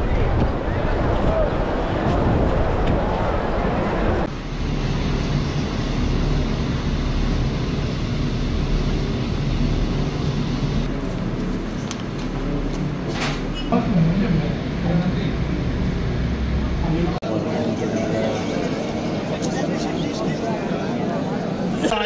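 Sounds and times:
low rumbling hum: 0:00.0 - 0:20.5.

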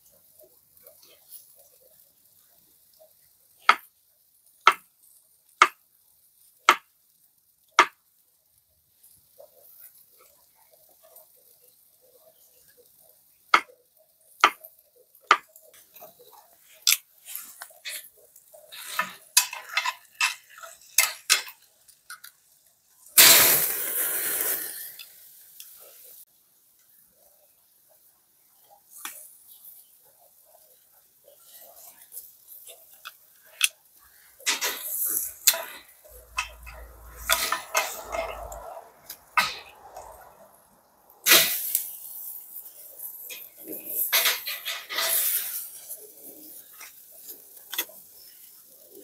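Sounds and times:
loud sizzle: 0:00.0 - 0:49.0
cooking utensils clicking: 0:16.9 - 0:22.4, 0:34.4 - 0:40.4.

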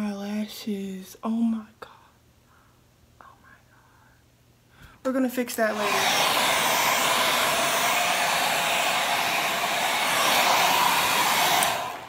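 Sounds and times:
hair dryer blowing: 0:05.7 - 0:12.0.

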